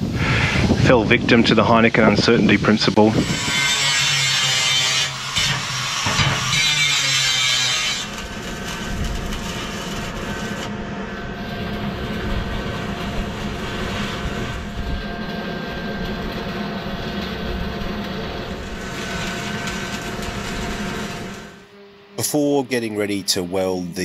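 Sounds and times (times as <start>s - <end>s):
power tool working steel: 3.0s - 21.8s.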